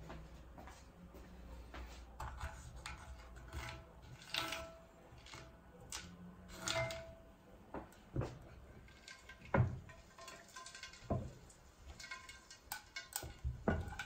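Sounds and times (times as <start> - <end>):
footsteps on wooden floor: 0.0 - 2.0
knocks and clicks of cookware: 7.7 - 14.0.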